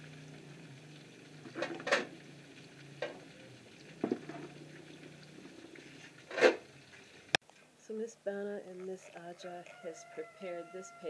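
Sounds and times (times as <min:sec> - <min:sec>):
metal cookware clattering: 0:01.5 - 0:02.2, 0:06.2 - 0:06.6.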